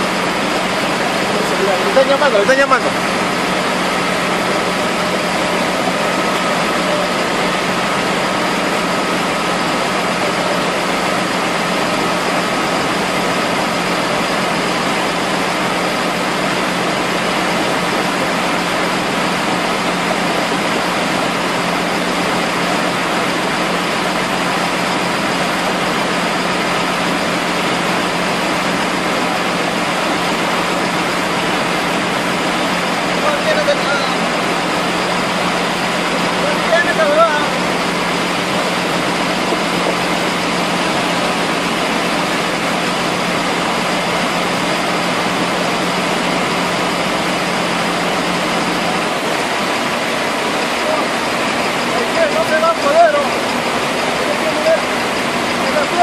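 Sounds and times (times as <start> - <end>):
diesel engine idling: 0.0 - 56.0
rushing floodwater: 0.0 - 56.0.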